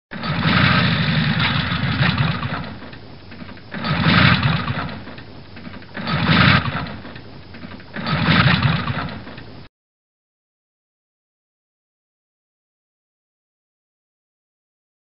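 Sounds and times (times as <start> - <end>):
motorcycle engine cranking: 0.1 - 9.5.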